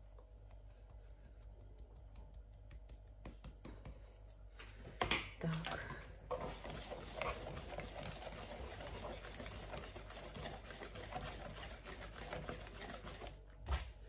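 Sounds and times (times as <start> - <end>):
flour rustling: 6.3 - 14.0.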